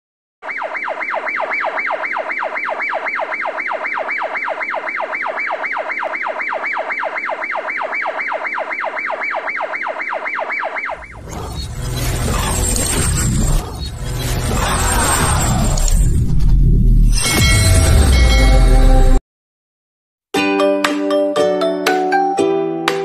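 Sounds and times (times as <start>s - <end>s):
siren rapid falling sweep: 0.4s - 16.2s.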